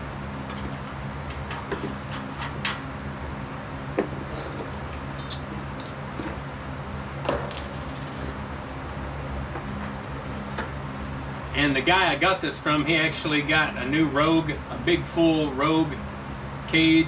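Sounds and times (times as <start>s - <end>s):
steady low hum: 0.0s - 17.0s
metal parts clinking and knocking: 7.3s - 8.4s.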